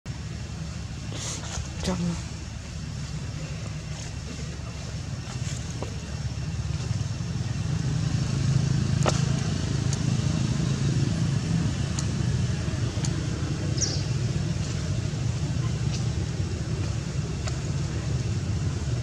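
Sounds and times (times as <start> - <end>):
vehicle engine rumble: 0.1 - 19.0.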